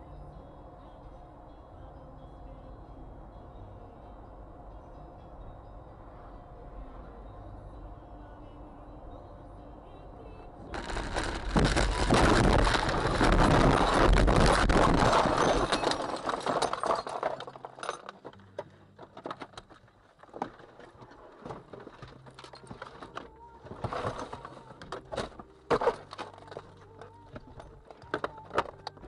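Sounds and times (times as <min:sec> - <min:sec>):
glass and debris clinking: 0:10.8 - 0:19.7, 0:22.0 - 0:29.0.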